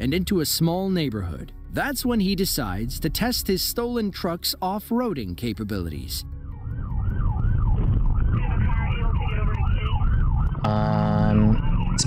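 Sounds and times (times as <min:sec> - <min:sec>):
engine and road rumble: 0:06.2 - 0:12.0
police siren sweeping: 0:06.4 - 0:12.0.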